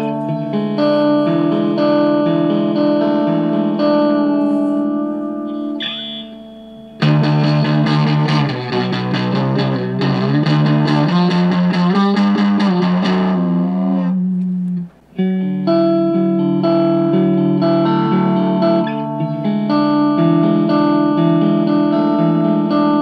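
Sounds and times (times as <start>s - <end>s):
fuzz electric guitar chords: 0.0s - 23.0s.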